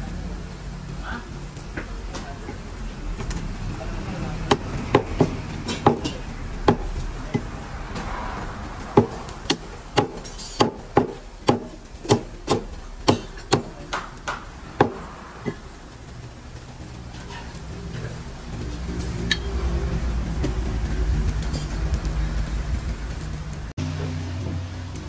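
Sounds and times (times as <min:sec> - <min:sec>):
cleaver chopping through ribs: 0:09.0 - 0:15.6.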